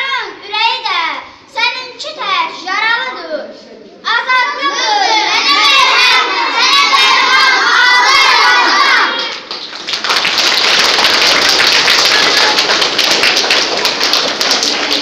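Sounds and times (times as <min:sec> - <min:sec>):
children calling out: 0:04.1 - 0:09.4
applause: 0:08.9 - 0:15.0.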